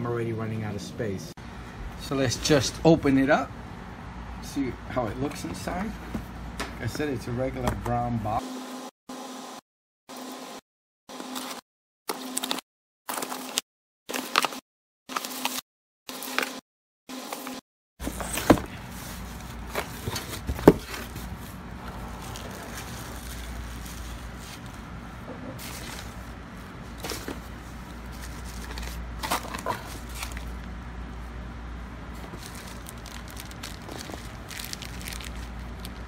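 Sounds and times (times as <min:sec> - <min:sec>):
packing material crinkling: 0:18.0 - 0:25.0, 0:25.6 - 0:30.7, 0:32.1 - 0:36.0
steady low hum: 0:18.0 - 0:36.0
cardboard box knocks: 0:20.4 - 0:21.0.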